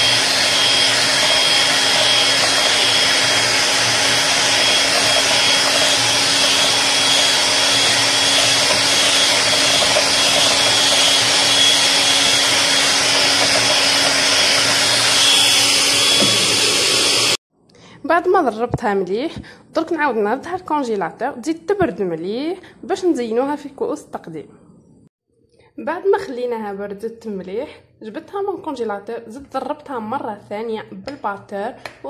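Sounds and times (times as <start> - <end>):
beaters whipping cream in bowl: 0.0 - 17.4
electric hand mixer whine: 0.0 - 17.4.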